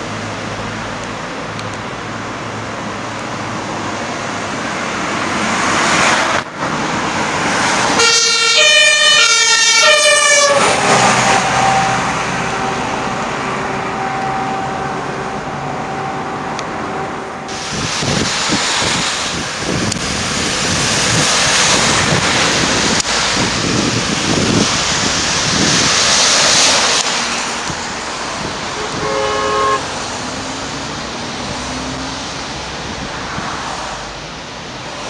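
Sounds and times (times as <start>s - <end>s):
tyres hissing on wet road: 0.0s - 35.0s
vehicle horn blast: 8.0s - 13.0s, 28.8s - 29.9s.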